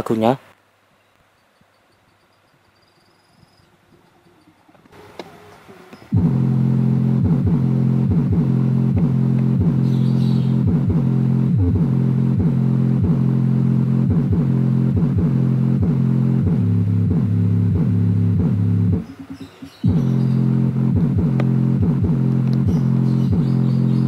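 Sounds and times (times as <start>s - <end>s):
loud bass line from subwoofer: 6.1s - 24.0s.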